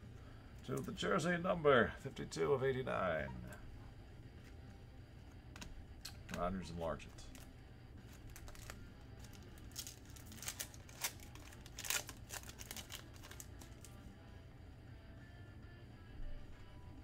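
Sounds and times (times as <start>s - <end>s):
low steady hum: 0.0s - 17.0s
card pack wrappers crinkling: 7.0s - 14.0s.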